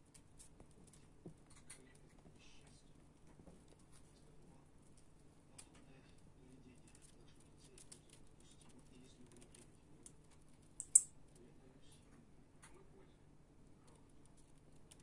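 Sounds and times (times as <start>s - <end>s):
bats ticking and scratching: 0.0s - 11.4s, 13.7s - 15.0s
sharp high click: 10.8s - 11.1s.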